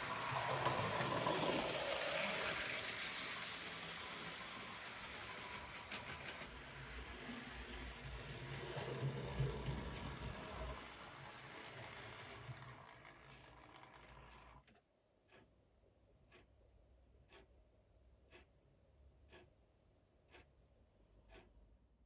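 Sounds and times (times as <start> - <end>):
model train humming: 0.0 - 14.6
faint ticks: 21.2 - 21.6.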